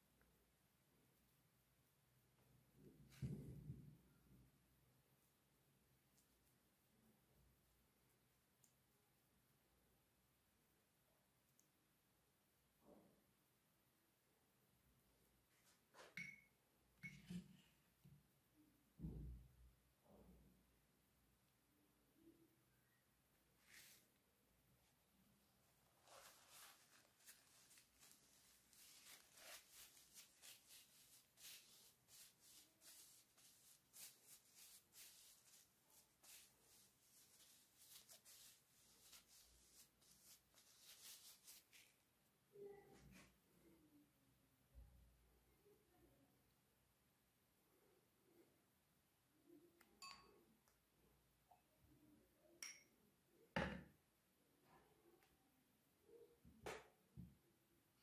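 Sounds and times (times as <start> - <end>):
tissue rustling on skin: 23.6 - 24.2, 24.8 - 42.0.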